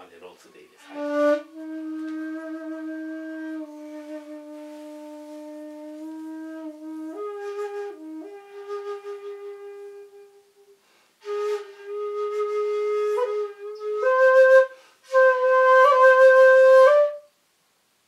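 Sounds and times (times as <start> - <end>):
bamboo flute notes: 0.8 - 17.3
breath noise: 10.8 - 11.2, 14.7 - 15.1.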